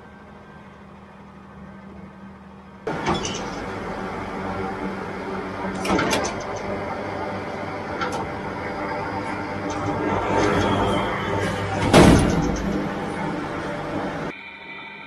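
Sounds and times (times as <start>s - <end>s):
engine hum: 0.0s - 14.4s
baler mechanical clatter: 2.8s - 14.3s.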